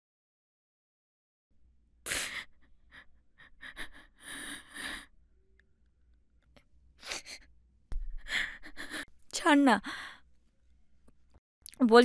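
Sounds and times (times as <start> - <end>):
woman crying: 2.1 - 5.1, 7.0 - 7.5, 8.2 - 9.9.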